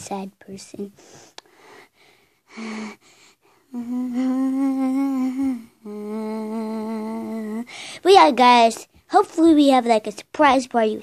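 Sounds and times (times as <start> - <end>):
person humming: 3.7 - 7.8.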